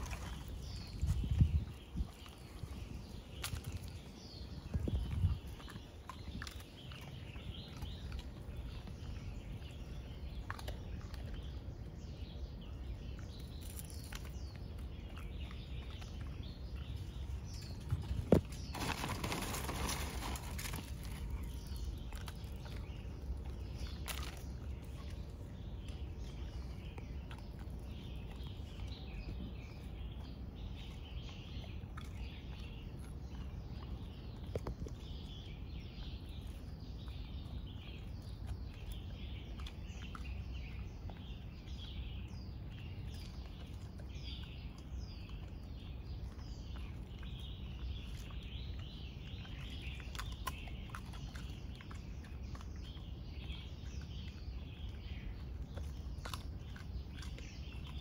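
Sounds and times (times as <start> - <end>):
plastic bag rustling: 18.1 - 21.4.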